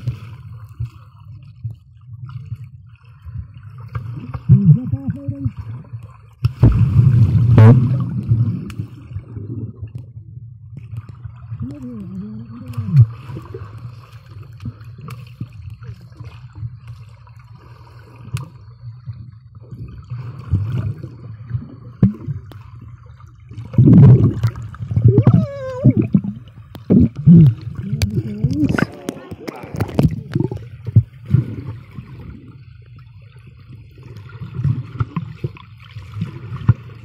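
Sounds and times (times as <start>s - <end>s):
muffled underwater rumble: 0.0s - 37.0s
water gurgling and bubbling: 0.0s - 37.0s
muffled voice: 27.8s - 30.6s.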